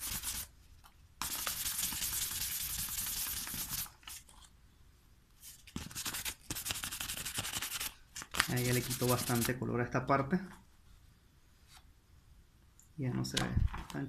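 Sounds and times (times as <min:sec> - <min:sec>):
sandpaper rasping on paper: 0:00.0 - 0:00.5, 0:01.2 - 0:03.9, 0:05.8 - 0:07.9, 0:08.5 - 0:09.5.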